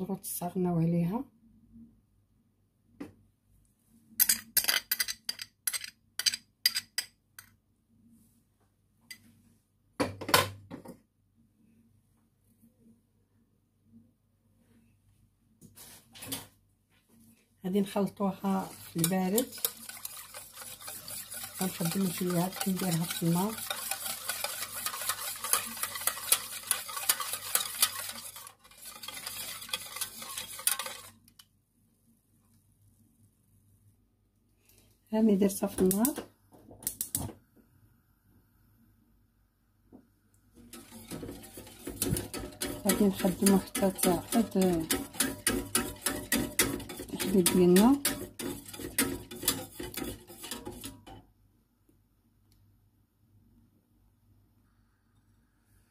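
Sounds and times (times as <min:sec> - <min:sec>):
whisk beating in a metal saucepan: 0:17.9 - 0:31.2, 0:40.6 - 0:51.2
heavy kitchenware clatter: 0:18.6 - 0:31.1, 0:40.7 - 0:51.2.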